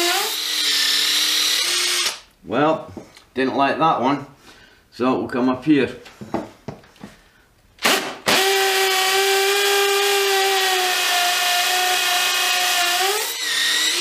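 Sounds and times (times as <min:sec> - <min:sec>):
hammer drill boring into brick: 0:00.0 - 0:02.2, 0:07.8 - 0:14.0.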